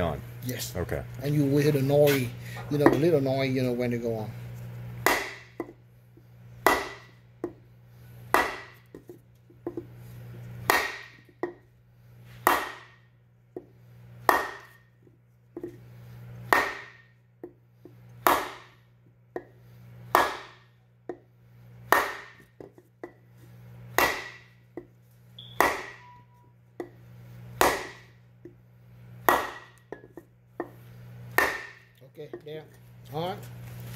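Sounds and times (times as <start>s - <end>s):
hammer knocking on wooden block: 5.1s - 5.8s, 6.7s - 7.6s, 8.4s - 9.8s, 14.3s - 14.8s, 16.5s - 17.6s, 20.2s - 20.6s, 21.9s - 23.2s, 24.0s - 24.4s, 27.6s - 28.0s, 29.3s - 30.8s, 31.4s - 32.5s.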